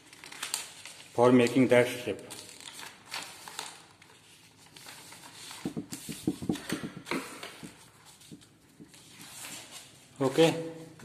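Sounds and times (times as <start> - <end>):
paper rustling and scraping: 2.4 - 10.5.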